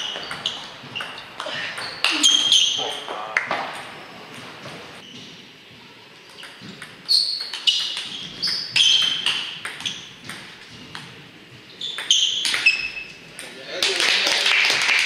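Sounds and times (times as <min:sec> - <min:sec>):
table tennis ball hits: 0:06.3 - 0:11.2, 0:11.9 - 0:13.6
ball bouncing on table: 0:06.4 - 0:11.2.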